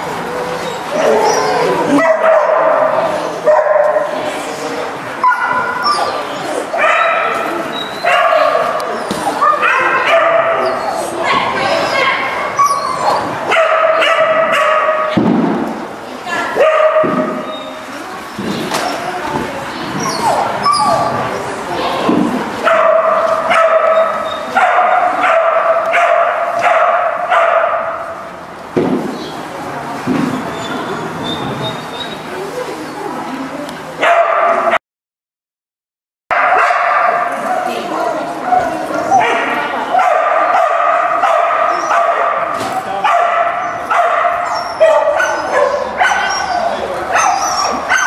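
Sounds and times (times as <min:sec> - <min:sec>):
dog barking: 0:01.9 - 0:04.2, 0:06.8 - 0:07.4, 0:08.0 - 0:08.8, 0:09.4 - 0:10.8, 0:12.6 - 0:15.2, 0:16.6 - 0:17.5, 0:22.6 - 0:28.0, 0:34.0 - 0:34.8, 0:36.3 - 0:37.8, 0:38.5 - 0:48.0
dog yelping: 0:05.2 - 0:08.6, 0:09.4 - 0:14.9, 0:20.0 - 0:21.2, 0:38.5 - 0:48.0.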